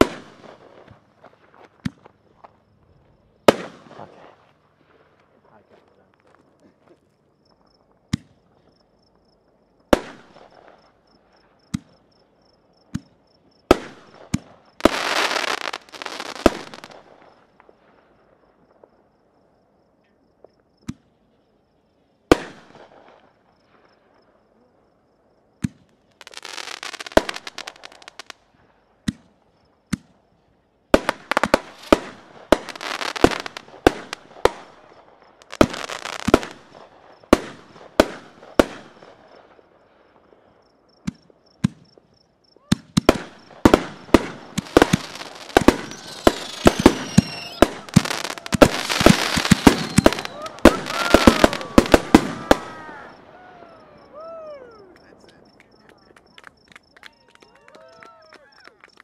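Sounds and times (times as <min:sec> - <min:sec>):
fireworks bursting in bangs: 0:00.0 - 0:01.2, 0:03.4 - 0:04.4, 0:09.9 - 0:10.9, 0:12.9 - 0:17.8, 0:22.3 - 0:23.3, 0:25.6 - 0:28.4, 0:30.9 - 0:40.2, 0:42.6 - 0:54.3
dense hiss of fireworks: 0:00.0 - 0:59.0.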